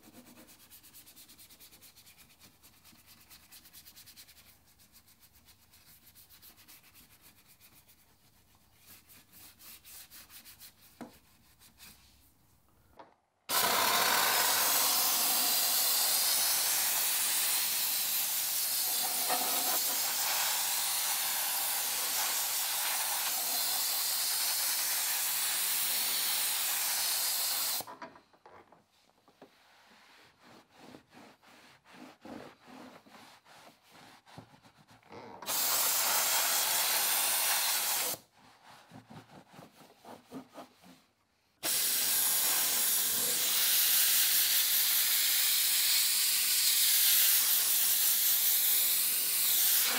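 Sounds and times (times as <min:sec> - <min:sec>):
brush scrubbing plastic: 0:00.0 - 0:12.2, 0:18.8 - 0:23.4, 0:29.4 - 0:35.9, 0:38.1 - 0:41.2
towel rubbing strokes: 0:00.0 - 0:12.3, 0:29.4 - 0:35.0, 0:38.3 - 0:41.2
steam cleaner hissing: 0:13.5 - 0:27.9, 0:35.5 - 0:38.2, 0:41.6 - 0:49.9.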